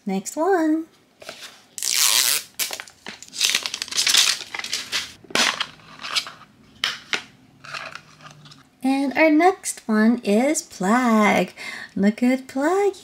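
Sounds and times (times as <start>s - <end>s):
plastic packaging crinkling: 1.8s - 6.4s.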